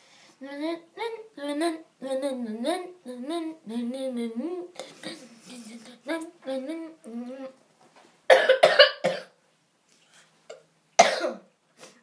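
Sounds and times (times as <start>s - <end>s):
person humming: 0.4s - 7.6s.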